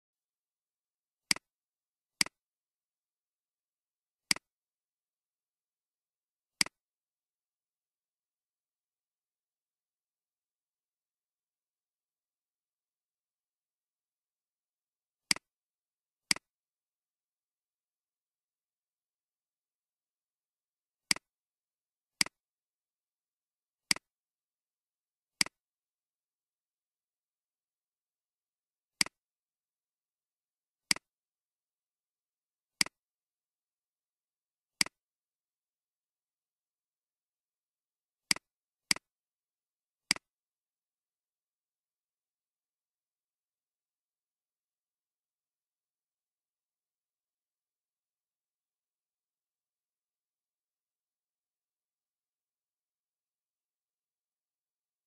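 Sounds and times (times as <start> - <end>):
computer mouse clicks: 4.3 - 4.5, 30.9 - 31.1, 40.1 - 40.3.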